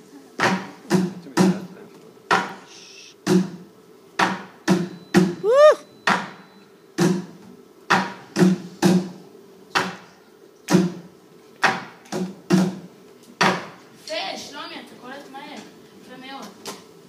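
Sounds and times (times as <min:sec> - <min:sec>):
short rising whoop: 0:05.4 - 0:05.9.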